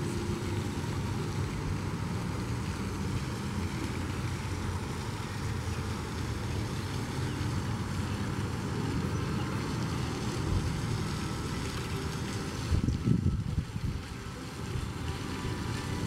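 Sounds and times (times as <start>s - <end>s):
wind buffeting microphone: 10.3s - 16.0s.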